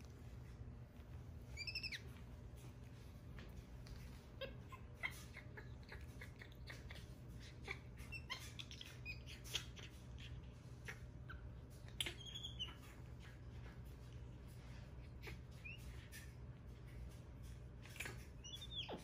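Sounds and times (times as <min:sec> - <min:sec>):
low steady hum: 0:00.0 - 0:19.0
monkeys squeaking and chirping: 0:01.5 - 0:02.2, 0:04.4 - 0:13.8, 0:14.9 - 0:16.5, 0:17.8 - 0:19.0.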